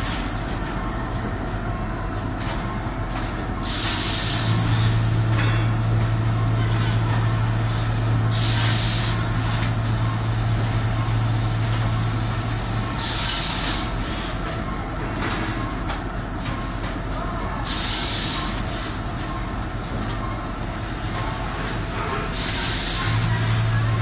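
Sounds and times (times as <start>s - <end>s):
packing machine running: 0.0s - 24.0s
steady low hum: 0.0s - 24.0s
short hisses of air: 8.3s - 9.2s.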